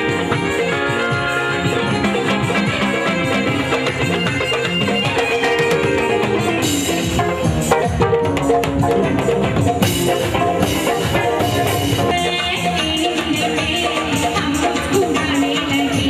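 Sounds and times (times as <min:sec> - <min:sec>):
hand drums: 0:00.0 - 0:16.0
live band music: 0:00.0 - 0:16.0.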